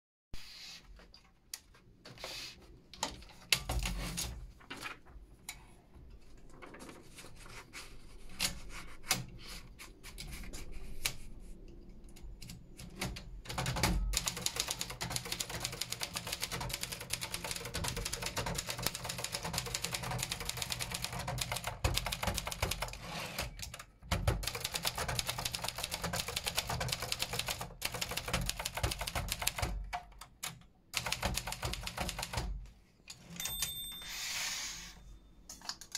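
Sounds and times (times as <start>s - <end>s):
manual typewriter typing: 3.0s - 4.4s, 12.2s - 33.8s.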